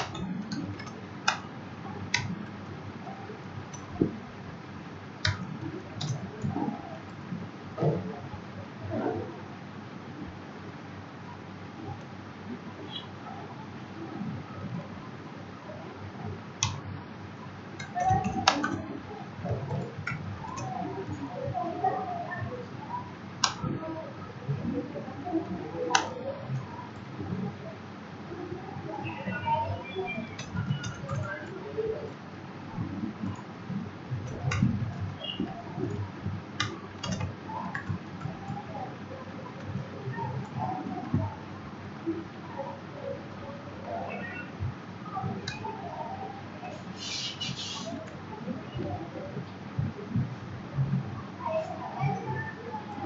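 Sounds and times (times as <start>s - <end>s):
keyboard keys clicking: 0.0s - 2.7s, 3.6s - 4.2s, 5.2s - 7.2s, 17.7s - 21.7s, 23.4s - 23.8s, 25.9s - 26.2s, 30.0s - 33.5s, 34.1s - 41.3s.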